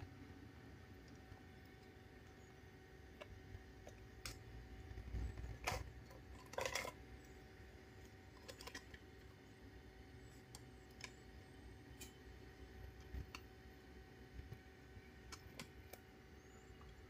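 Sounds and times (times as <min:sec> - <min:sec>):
faint steady hum: 0:00.0 - 0:17.0
plastic parts clicking and clattering: 0:03.2 - 0:07.3, 0:08.1 - 0:09.1.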